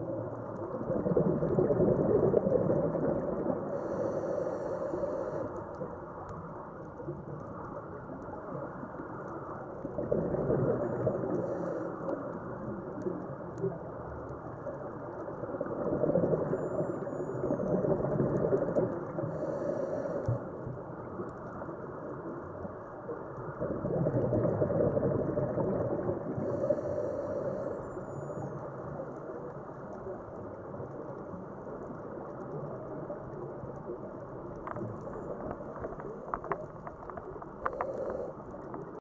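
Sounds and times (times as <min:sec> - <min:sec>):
bubbling exhaled air underwater: 0:00.0 - 0:05.4, 0:09.8 - 0:11.8, 0:15.4 - 0:20.5, 0:23.4 - 0:28.5.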